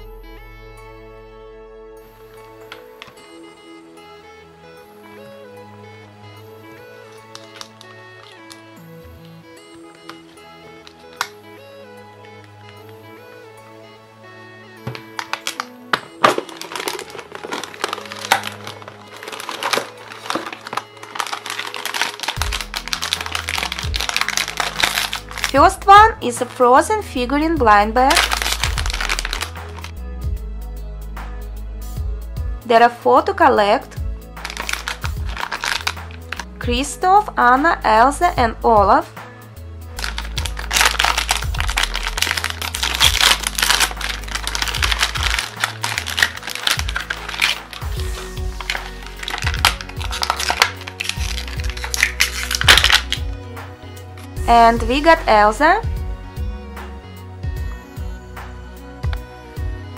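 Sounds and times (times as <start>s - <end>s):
background music: 0.0s - 59.9s
plastic packet crackling and rustling: 7.0s - 11.4s, 14.9s - 26.6s, 28.1s - 30.0s, 34.4s - 36.5s, 40.0s - 53.4s
plastic and foil crinkling: 7.1s - 11.4s, 14.9s - 26.7s, 28.1s - 30.0s, 34.4s - 36.5s, 40.0s - 53.4s
sharp plastic snap: 10.8s - 11.4s.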